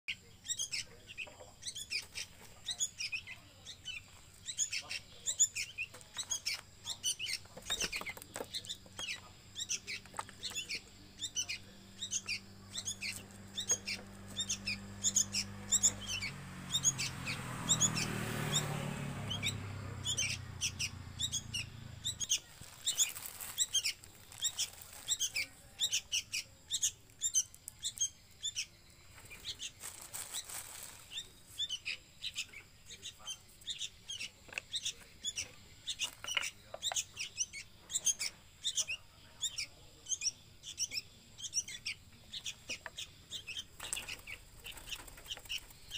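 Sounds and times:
bird chicks chirping: 0.1s - 45.9s.

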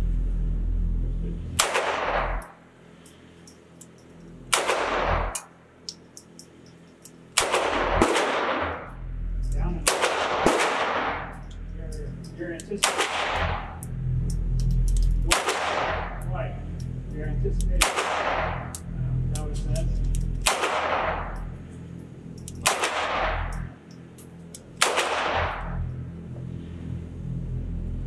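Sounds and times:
pistol shots echoing: 1.6s - 2.4s, 4.5s - 5.4s, 7.4s - 8.8s, 9.8s - 11.3s, 12.8s - 13.7s, 15.3s - 16.2s, 17.8s - 18.7s, 20.4s - 21.4s, 22.6s - 23.6s, 24.8s - 25.8s.

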